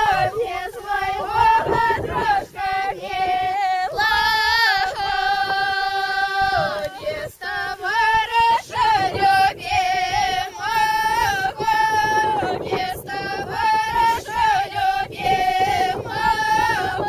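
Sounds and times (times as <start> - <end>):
group of women and girls singing: 0.0 - 17.0.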